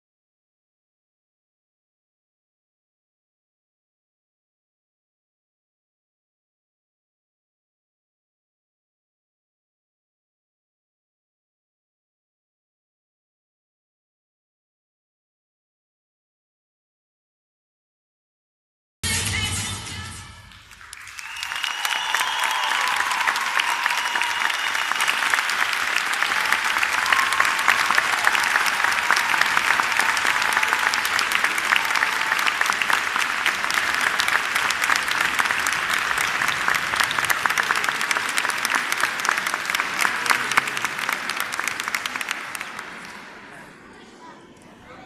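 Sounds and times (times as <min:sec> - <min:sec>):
audience applauding: 0:20.6 - 0:43.6.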